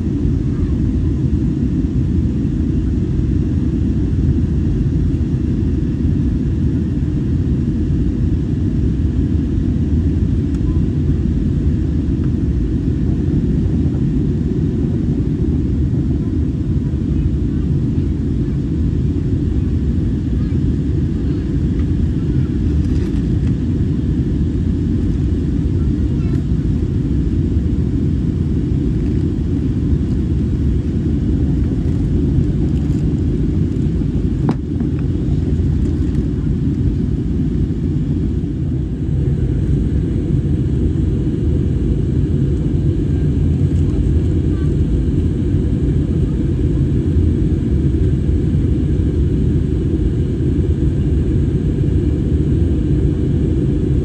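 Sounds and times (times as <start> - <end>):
airplane cabin roar: 0.0 - 54.0.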